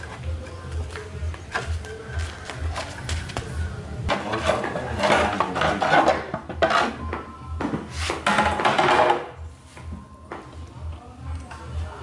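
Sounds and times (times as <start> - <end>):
plastic mudguard scraping metal fork: 4.1 - 7.0.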